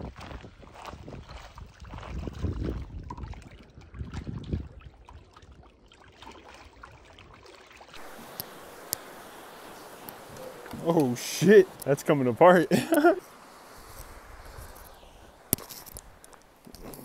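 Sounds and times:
wind buffeting microphone: 0.0s - 5.9s, 6.6s - 17.0s
small waves lapping on rocks: 5.9s - 17.0s.

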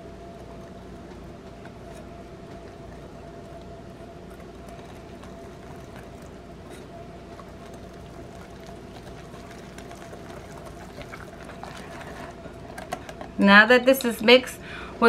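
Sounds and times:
steady background hum: 0.0s - 15.0s
whisk stirring batter: 4.4s - 12.7s.

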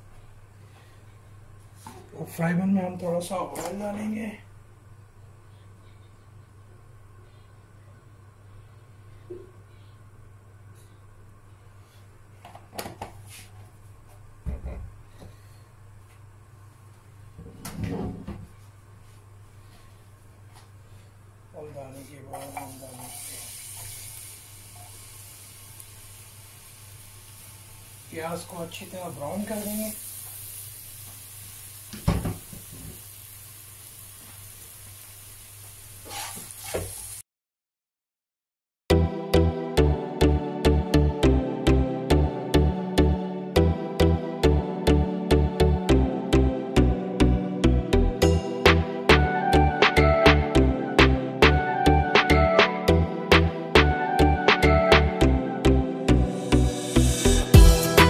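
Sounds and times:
onions sizzling in oil: 22.4s - 37.2s
thump: 32.0s - 32.4s.

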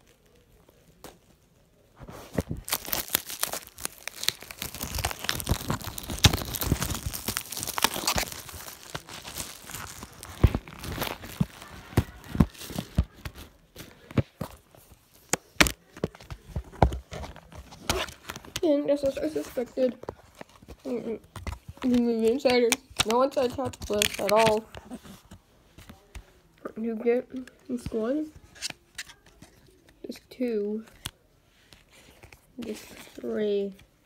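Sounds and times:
plastic wrap tearing and crinkling: 2.1s - 15.9s, 16.8s - 25.2s.

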